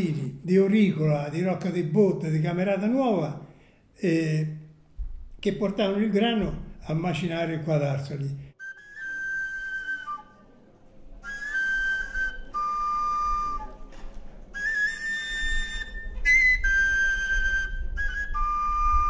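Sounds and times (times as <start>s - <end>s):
solo flute melody: 8.6s - 19.0s.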